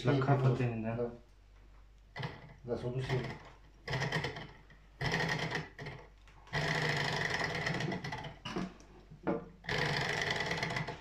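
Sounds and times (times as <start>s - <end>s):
small engine rattling: 3.0s - 8.4s, 9.7s - 11.0s.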